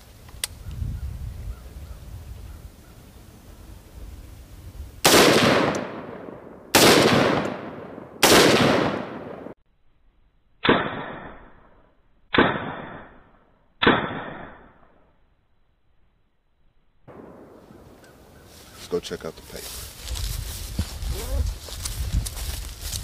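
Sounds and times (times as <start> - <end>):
rifle gunshots: 5.0 - 9.6, 12.3 - 13.1, 17.1 - 18.0.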